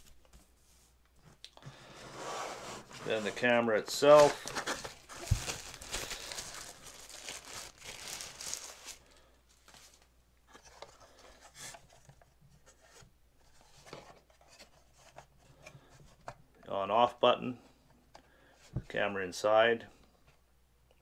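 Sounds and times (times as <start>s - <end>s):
tissue paper crinkling: 4.0s - 10.1s.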